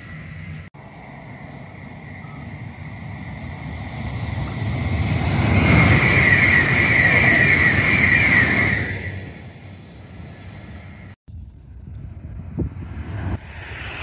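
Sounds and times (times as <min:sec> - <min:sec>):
high-speed train passing: 0:00.0 - 0:14.0.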